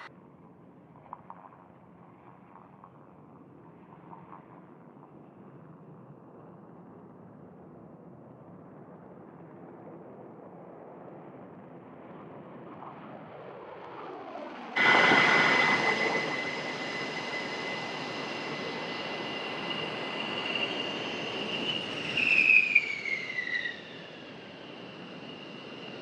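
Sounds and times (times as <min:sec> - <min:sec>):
faint jet noise: 0:11.6 - 0:26.0
jet engines whining: 0:14.0 - 0:26.0.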